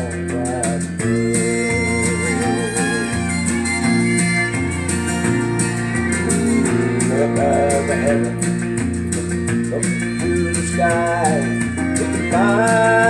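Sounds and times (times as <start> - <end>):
country music with fiddle: 0.0 - 13.0
person singing: 0.0 - 13.0.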